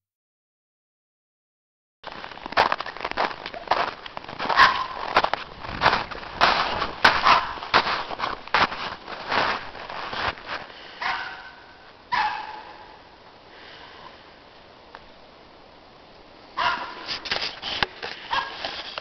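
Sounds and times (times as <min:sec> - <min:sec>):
dog barks: 0:04.5 - 0:05.1, 0:07.1 - 0:07.8, 0:11.0 - 0:13.1, 0:16.6 - 0:17.1, 0:18.3 - 0:18.7.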